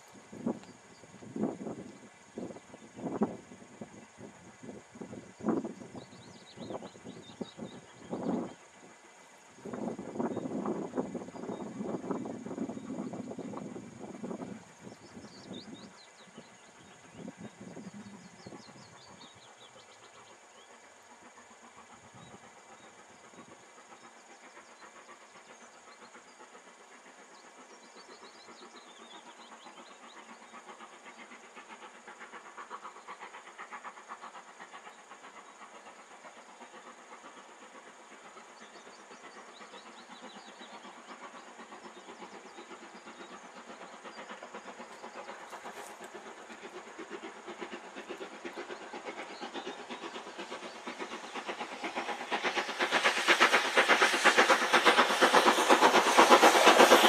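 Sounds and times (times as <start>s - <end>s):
steam locomotive exhaust beats: 0.0s - 57.0s.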